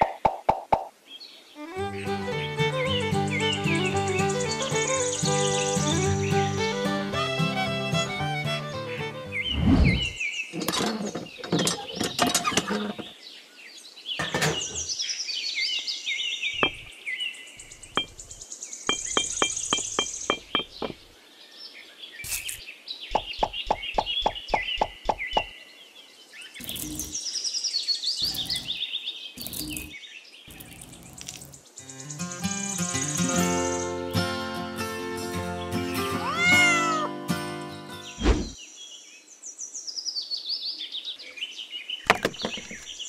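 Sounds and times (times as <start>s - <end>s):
birds chirping: 0.0s - 39.3s, 40.2s - 43.0s
sharp knocks: 16.6s - 16.9s, 18.9s - 21.0s.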